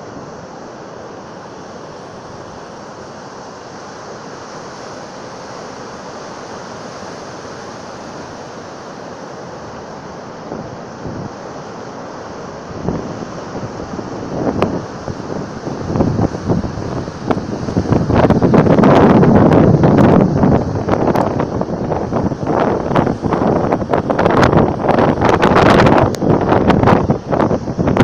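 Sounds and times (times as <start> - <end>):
surf breaking on beach: 0.0 - 28.0
wind buffeting microphone: 12.7 - 28.0.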